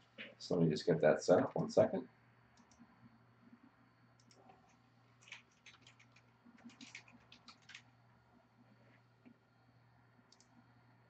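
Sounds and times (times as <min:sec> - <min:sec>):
low steady hum: 0:00.0 - 0:11.0
computer keyboard typing: 0:04.2 - 0:07.9.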